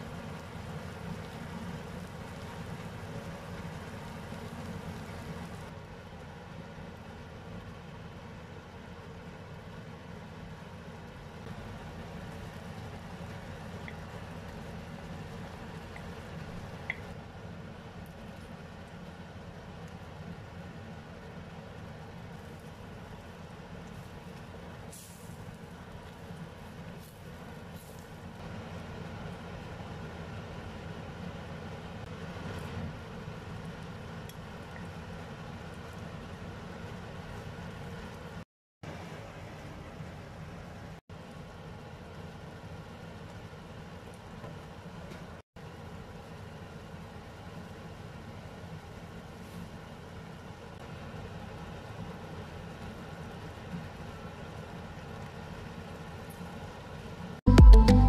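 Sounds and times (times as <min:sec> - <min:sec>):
sauce cooking in a wok: 0:00.0 - 0:57.4
low kitchen hum: 0:00.0 - 0:57.8
stove hissing: 0:21.0 - 0:38.5.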